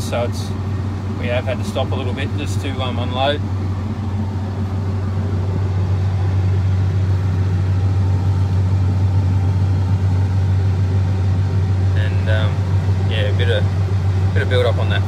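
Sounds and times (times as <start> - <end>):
combine harvester engine drone: 0.0 - 15.0.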